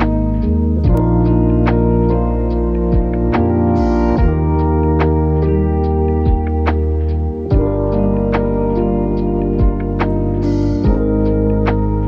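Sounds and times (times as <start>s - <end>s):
instrumental music with beat: 0.0s - 12.0s
kick drum hits: 2.9s - 3.3s, 4.2s - 4.4s, 6.3s - 6.5s, 7.5s - 7.8s, 9.6s - 9.9s.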